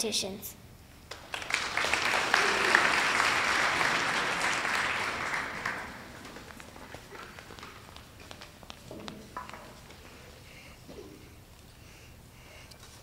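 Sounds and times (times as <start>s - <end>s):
audience clapping: 1.0s - 9.9s.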